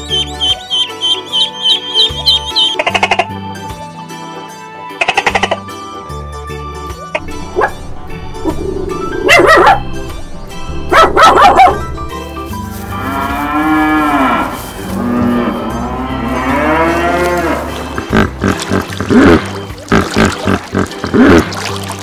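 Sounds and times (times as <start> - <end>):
cattle mooing: 12.8 - 21.4.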